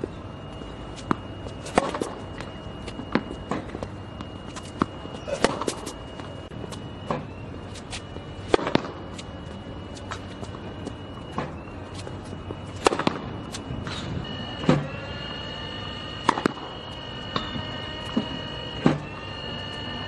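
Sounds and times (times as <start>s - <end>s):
tennis balls bouncing: 0.0s - 6.4s, 7.0s - 10.7s, 11.3s - 14.0s, 16.2s - 16.7s
faint high whine: 0.0s - 20.0s
racket hitting tennis ball: 1.0s - 2.2s, 4.4s - 6.0s, 7.8s - 9.2s, 12.7s - 14.0s, 16.2s - 16.7s.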